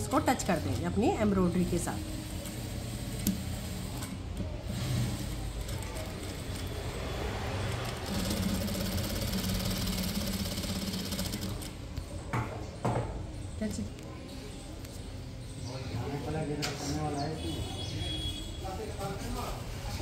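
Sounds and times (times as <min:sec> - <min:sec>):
sewing machine running: 0:00.0 - 0:11.8.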